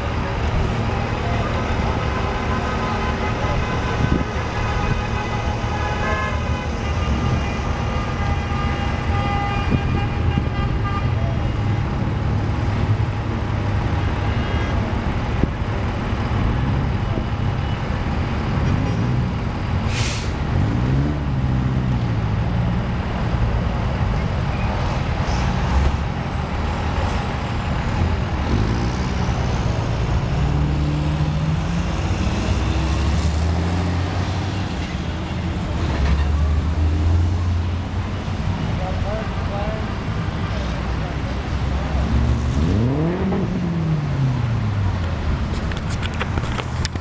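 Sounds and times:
highway traffic rumble: 0.0s - 47.0s
vehicle horns honking: 0.8s - 11.8s
short hiss: 19.9s - 20.4s.

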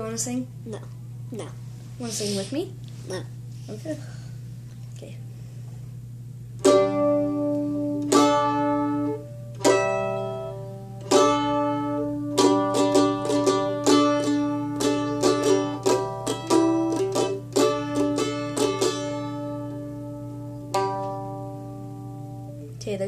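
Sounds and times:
mandolin melody: 6.6s - 22.6s.

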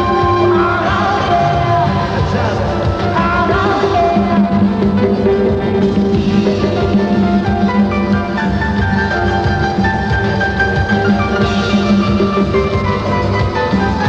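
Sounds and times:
woman singing: 0.0s - 6.1s
electric bass guitar: 0.0s - 14.0s
live band playing: 0.0s - 14.0s.

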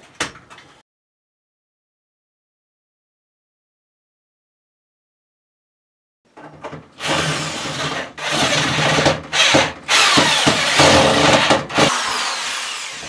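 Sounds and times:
cordless drill driving screws: 7.0s - 13.0s.

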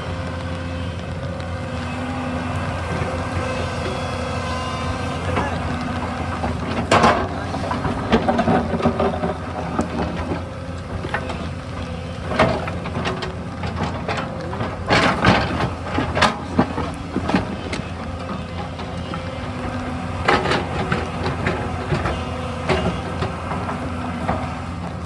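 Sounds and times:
excavator diesel engine running: 0.0s - 25.0s
digging clanks and knocks: 5.3s - 11.5s.

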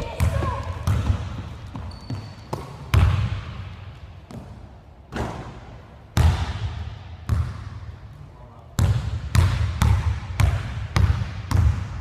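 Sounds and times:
basketball bouncing on hardwood floor: 0.0s - 3.6s, 7.3s - 7.6s, 8.8s - 12.0s.

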